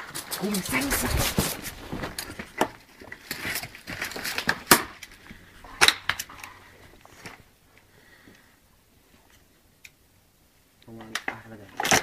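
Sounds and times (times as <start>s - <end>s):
rubble crunching underfoot: 0.0s - 7.5s.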